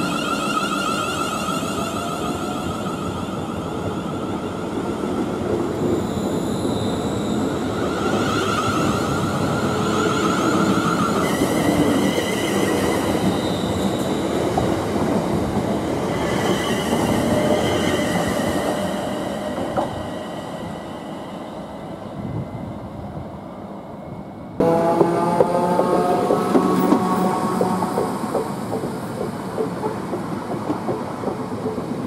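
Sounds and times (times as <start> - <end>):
wheels rumbling on rails: 24.6 - 32.0.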